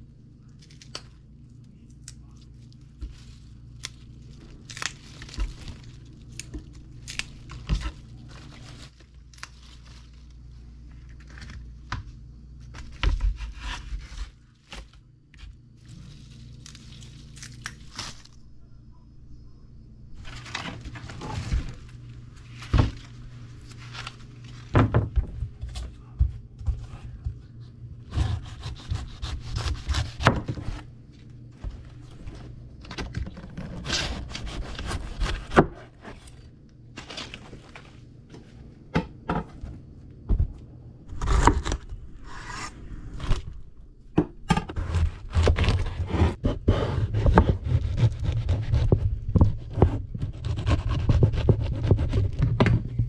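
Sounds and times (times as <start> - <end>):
low hum: 0.0 - 53.0
knife sawing through pineapple: 28.1 - 30.3, 33.7 - 36.2, 44.8 - 49.0, 49.8 - 52.4.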